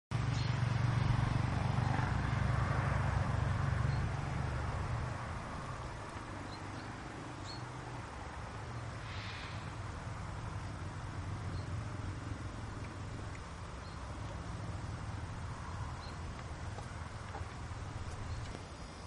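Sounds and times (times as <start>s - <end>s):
breathy hiss: 8.7s - 11.2s
horse hoofbeats on grass: 12.0s - 18.8s.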